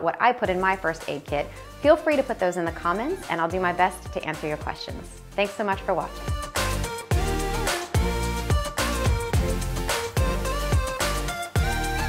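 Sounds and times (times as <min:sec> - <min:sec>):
background music: 0:00.0 - 0:12.0
steady drum beat: 0:06.2 - 0:12.0.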